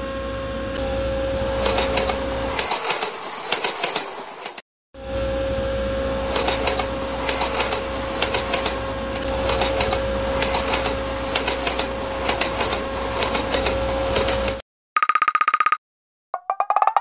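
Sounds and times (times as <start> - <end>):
construction machine motor whine: 0.0 - 2.6, 5.0 - 14.6
mechanical clicks and clanks: 1.6 - 4.6, 6.3 - 15.8.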